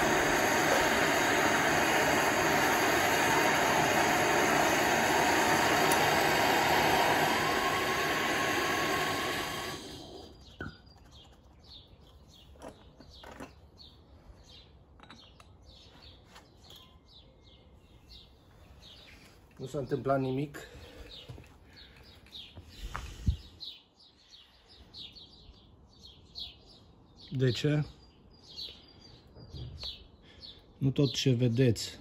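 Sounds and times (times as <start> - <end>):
gas torch flame hissing: 0.0 - 10.5, 22.8 - 23.5
birds chirping: 0.0 - 32.0.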